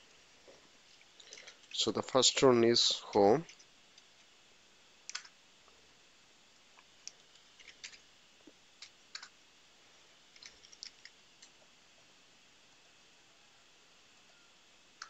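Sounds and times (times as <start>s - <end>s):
computer keyboard typing: 5.1s - 5.3s, 9.1s - 9.3s, 10.4s - 11.5s.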